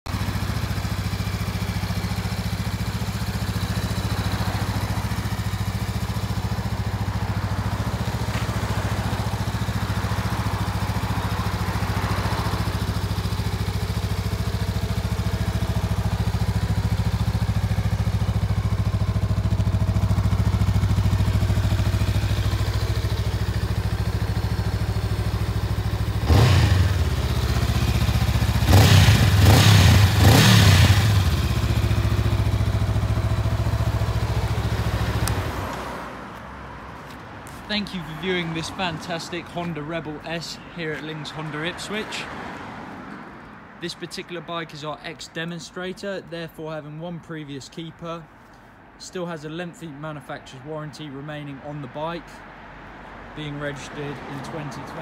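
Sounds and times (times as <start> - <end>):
motorcycle engine idling: 0.1 - 35.8.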